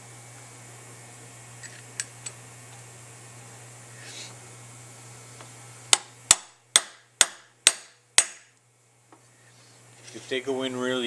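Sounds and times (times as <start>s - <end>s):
faint handling noise: 9.1s - 10.6s.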